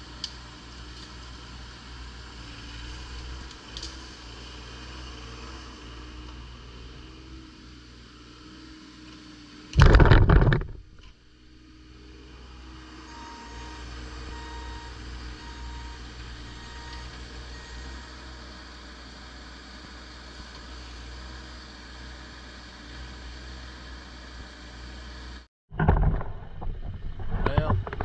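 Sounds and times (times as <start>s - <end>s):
diesel engine running: 0.0s - 25.4s
crash of wood and branches: 9.8s - 11.1s.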